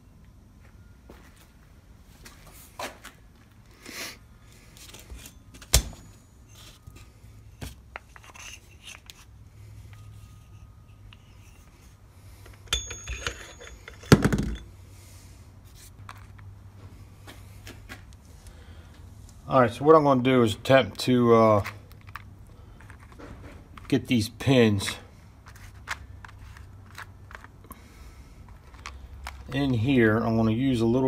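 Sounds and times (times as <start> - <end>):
metal parts clattering: 12.6 - 14.7
ringing metal clinks: 12.6 - 14.7.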